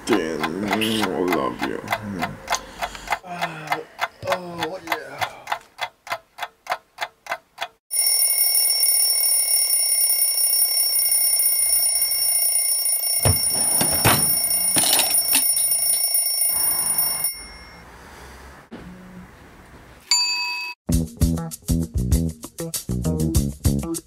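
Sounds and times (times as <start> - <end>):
alarm clock bell ringing: 7.9 - 17.9
drawer rummaging and clattering: 13.2 - 15.6.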